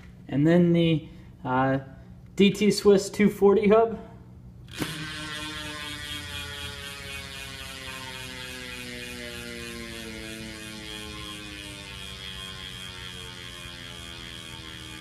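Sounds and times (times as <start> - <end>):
bicycle freehub buzzing: 4.7 - 15.0.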